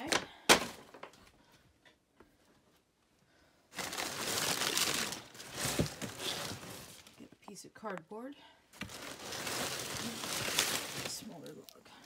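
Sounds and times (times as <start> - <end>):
paper and cardboard rustling: 3.8 - 7.2, 8.8 - 11.6.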